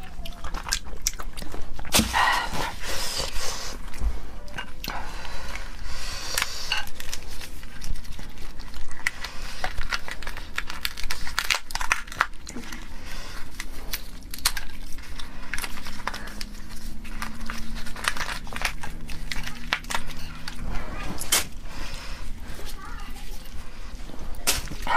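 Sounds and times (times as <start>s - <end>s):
shell cracking and gloves crinkling: 4.8s - 24.9s.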